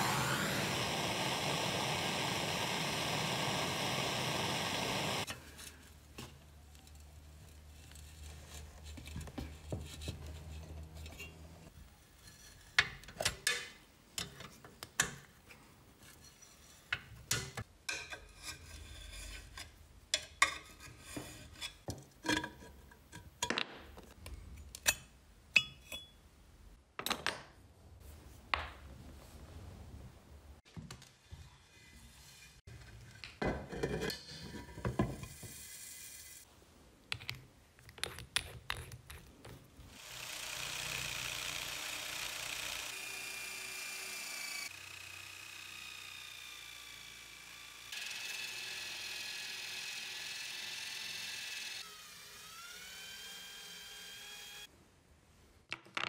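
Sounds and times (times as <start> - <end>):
blowtorch hissing: 0.0 - 5.3.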